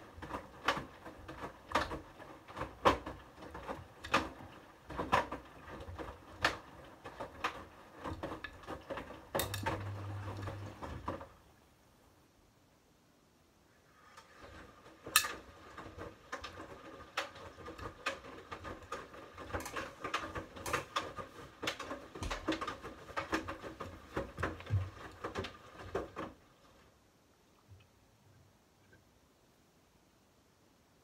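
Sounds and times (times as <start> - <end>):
water sloshing in washing machine: 0.0 - 11.4, 14.0 - 26.9
washing machine motor hum: 0.0 - 11.6, 14.0 - 26.9.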